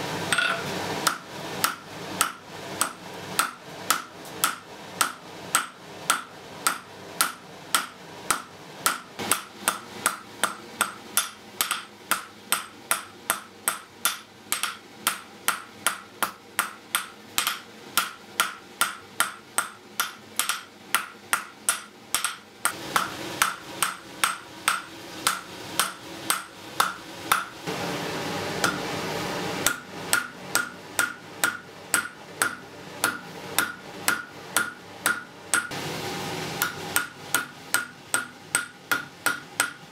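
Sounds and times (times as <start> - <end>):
hammer striking iron on anvil: 0.3 - 27.5, 28.6 - 28.8, 29.6 - 35.8, 36.6 - 39.9.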